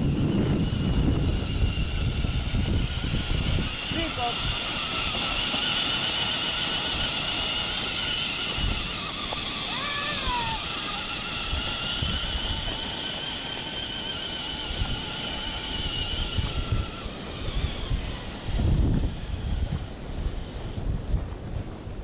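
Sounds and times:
toy truck motor and gears whining: 0.0 - 21.2.

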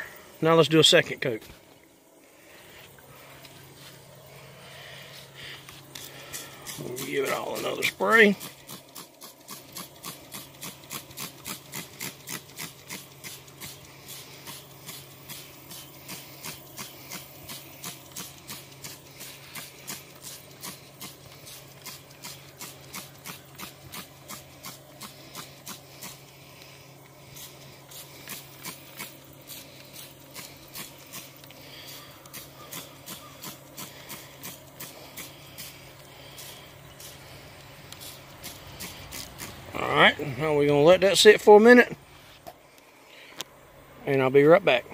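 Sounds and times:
spray bottle spritzing: 5.7 - 39.7.

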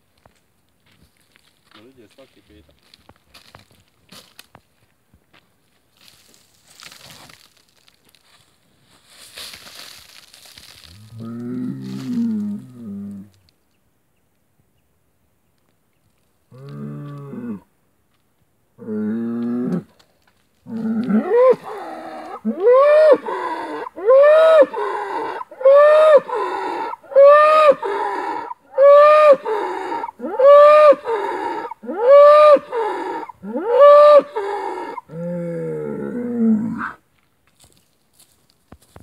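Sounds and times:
bull bellowing: 11.0 - 13.3, 16.5 - 17.7, 18.8 - 19.9, 20.7 - 37.0.

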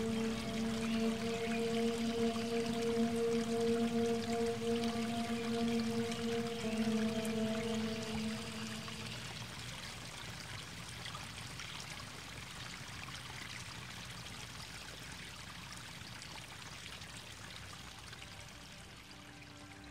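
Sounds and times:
running water: 0.0 - 14.6.

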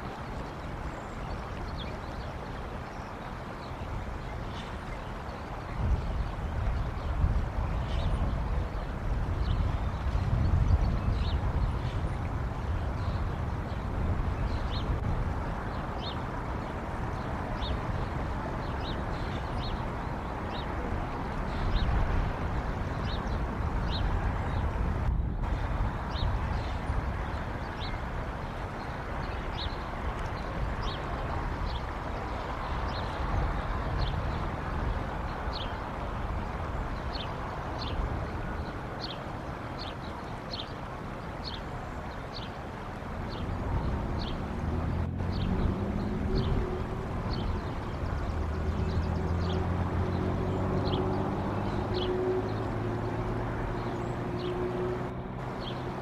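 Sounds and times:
wind rumble on microphone: 0.0 - 56.0
small birds chirping: 25.4 - 36.0, 36.7 - 42.6, 43.2 - 46.7, 47.3 - 54.6, 55.4 - 56.0.

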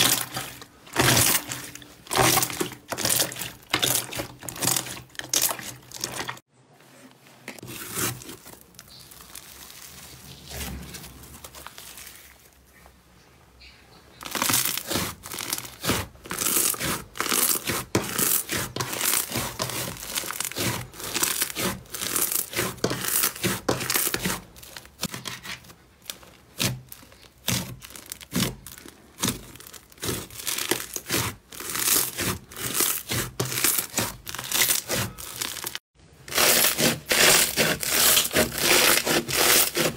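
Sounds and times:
slime crackling and crinkling: 0.0 - 6.5, 7.5 - 12.8, 14.2 - 39.9.

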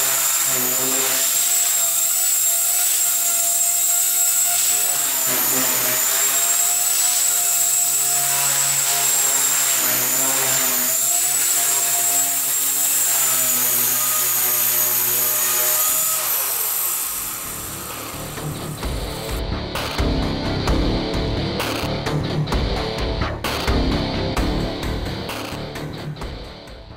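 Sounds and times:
rc helicopter motor whine: 0.0 - 19.4.

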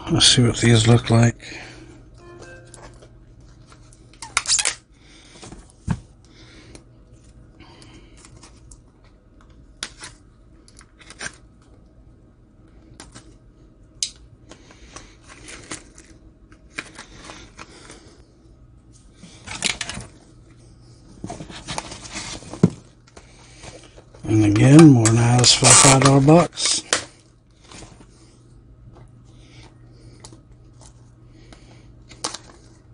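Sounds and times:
rustling in foam peanuts: 21.0 - 28.1.

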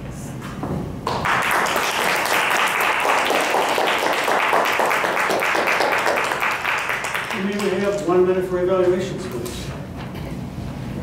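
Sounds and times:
audience applauding: 1.1 - 8.0.

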